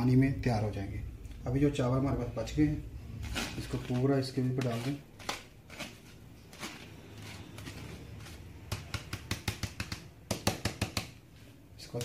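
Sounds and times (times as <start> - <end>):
metal spoon scraping rice: 3.2 - 9.2
spoon knocking against colander: 8.7 - 11.2.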